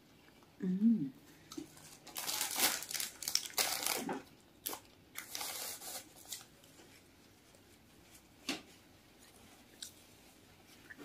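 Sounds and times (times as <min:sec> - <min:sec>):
plastic tissue pack crinkling: 0:01.5 - 0:08.2.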